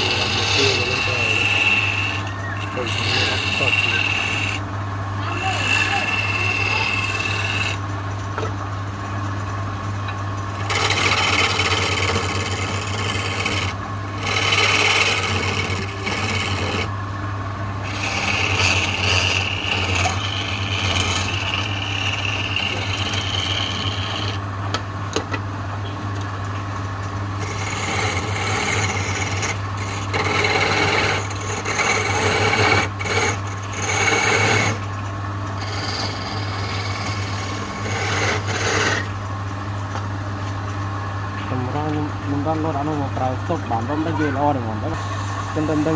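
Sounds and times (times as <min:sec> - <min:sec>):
turning tool scraping wood: 0:00.0 - 0:04.6, 0:05.2 - 0:07.8, 0:10.5 - 0:16.9, 0:17.8 - 0:24.4, 0:27.4 - 0:39.2, 0:45.0 - 0:45.9
wood lathe humming: 0:00.0 - 0:08.5, 0:10.5 - 0:24.8, 0:27.3 - 0:39.4, 0:41.5 - 0:45.9.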